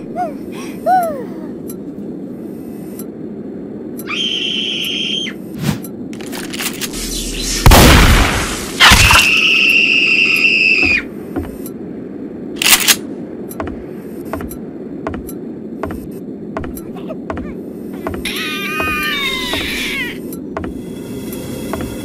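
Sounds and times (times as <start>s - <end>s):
shotgun blast: 7.5s - 9.2s
low steady drone: 11.0s - 22.0s.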